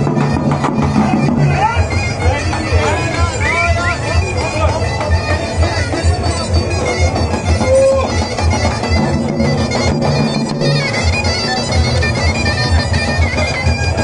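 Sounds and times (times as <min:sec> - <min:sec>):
davul bass drum beats: 0:00.0 - 0:14.0
zurna reedy melody: 0:00.0 - 0:14.0.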